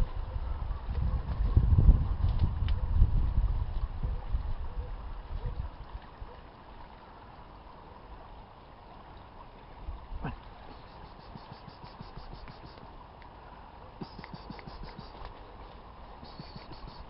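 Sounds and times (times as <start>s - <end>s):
wind buffeting microphone: 0.0s - 6.1s
light rustles and ticks: 2.2s - 4.0s, 10.4s - 17.0s
faint outdoor hiss: 2.2s - 17.0s.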